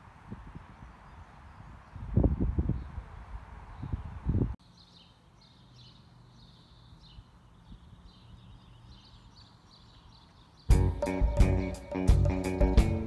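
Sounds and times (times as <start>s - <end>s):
wind buffeting microphone: 0.0s - 4.6s
birds chirping: 0.5s - 13.0s.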